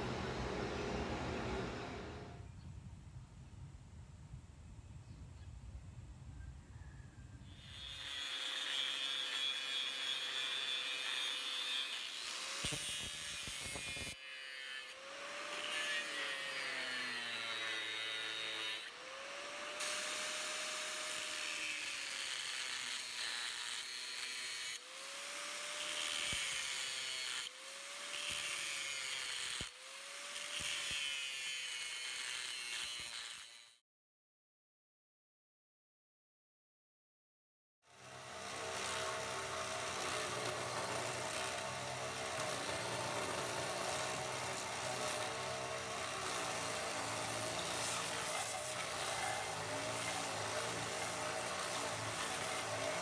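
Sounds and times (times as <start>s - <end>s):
angle grinder cutting steel: 7.5s - 33.8s, 37.9s - 53.0s.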